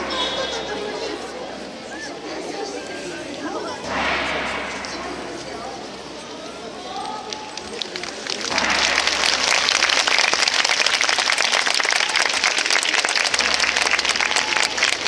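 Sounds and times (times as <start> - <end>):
large crowd applauding: 7.2 - 15.0.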